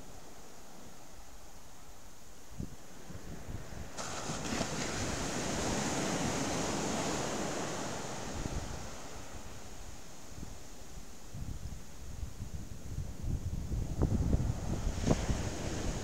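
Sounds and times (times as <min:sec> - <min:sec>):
wind rumbling on microphone: 0:02.4 - 0:16.0
waves breaking on sand: 0:02.8 - 0:11.2, 0:14.0 - 0:16.0.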